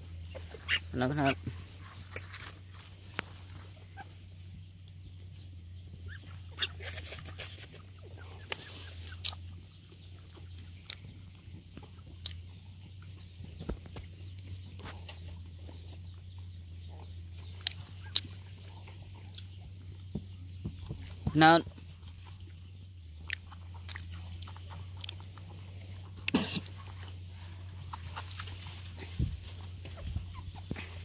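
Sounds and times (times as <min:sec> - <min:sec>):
steady low hum: 0:00.0 - 0:31.0
dogs rustling in dry leaves: 0:28.0 - 0:29.9.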